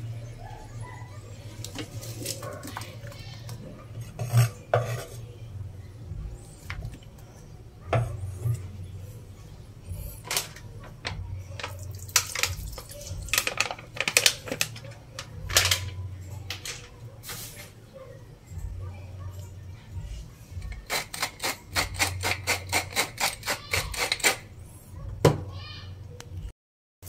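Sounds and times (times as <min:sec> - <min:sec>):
steady low hum: 0:05.2 - 0:12.0.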